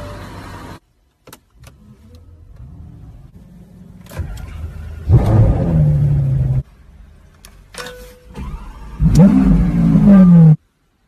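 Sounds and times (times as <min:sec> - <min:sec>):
car engine revving and idling: 0:01.7 - 0:07.2, 0:08.4 - 0:10.8.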